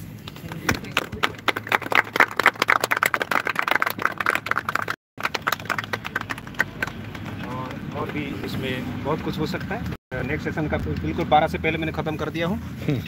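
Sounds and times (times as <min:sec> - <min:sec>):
crowd applauding: 0:00.7 - 0:08.3.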